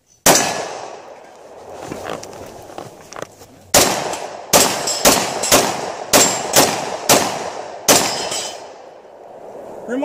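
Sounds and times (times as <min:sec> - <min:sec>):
pistol shots: 0:00.2 - 0:01.1, 0:03.7 - 0:08.8.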